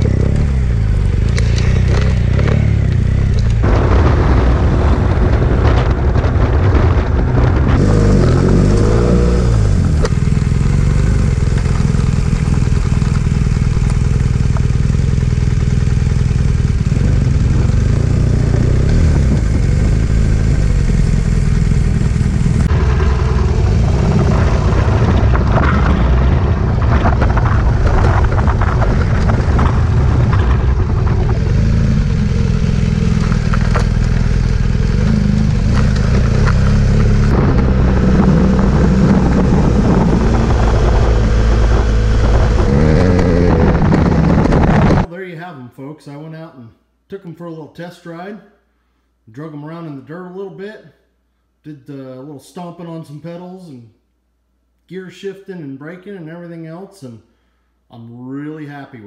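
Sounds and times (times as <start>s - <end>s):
motorcycle engine running: 0.0s - 45.1s
wind and road noise: 0.0s - 45.1s
stones clattering under tyres: 1.1s - 4.0s, 24.4s - 31.5s, 33.0s - 36.8s.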